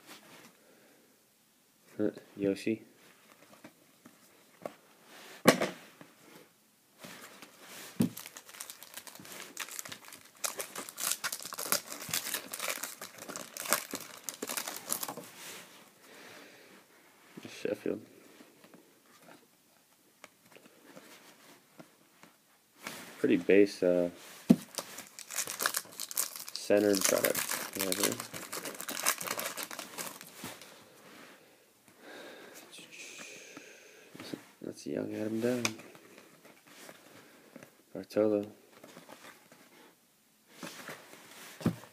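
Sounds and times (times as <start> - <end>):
foil wrapper crinkling: 8.0 - 15.2, 24.7 - 30.4
cards being handled: 24.5 - 30.6.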